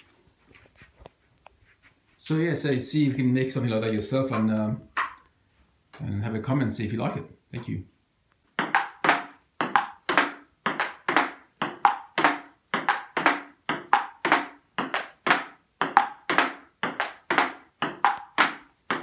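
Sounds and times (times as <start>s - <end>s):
table tennis ball pinging: 5.0s - 5.2s, 8.5s - 19.0s.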